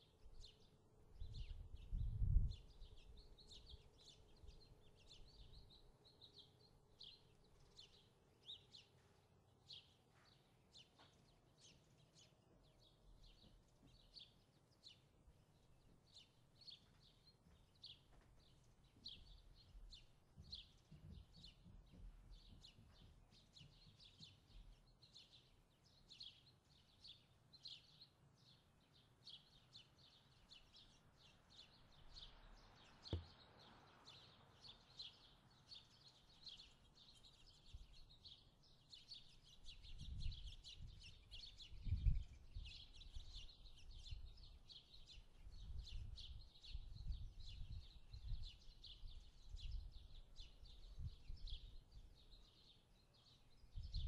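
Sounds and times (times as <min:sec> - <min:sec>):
bird chirping: 0:00.0 - 0:54.0
soft knock: 0:33.1 - 0:33.4.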